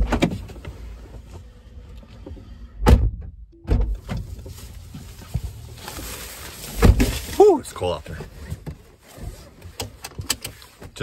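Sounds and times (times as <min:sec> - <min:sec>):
rustling and knocks in car cabin: 0:00.0 - 0:01.5, 0:02.8 - 0:11.0.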